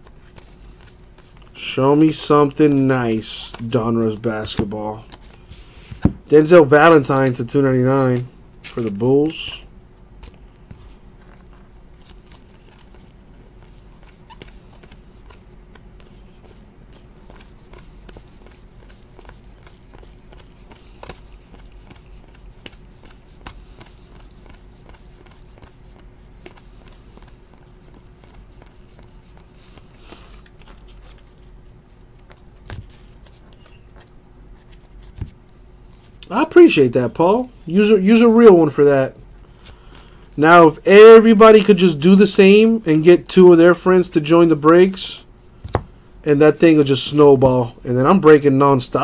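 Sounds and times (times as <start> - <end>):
steady low hum: 0.0 - 49.0
cards clicking and sliding: 7.0 - 9.5, 10.2 - 25.8.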